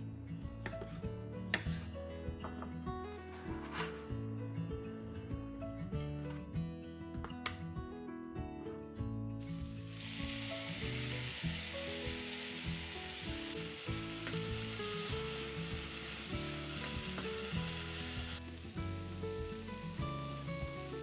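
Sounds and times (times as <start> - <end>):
background music: 0.0 - 21.0
vegetables sizzling in a frying pan: 9.4 - 21.0.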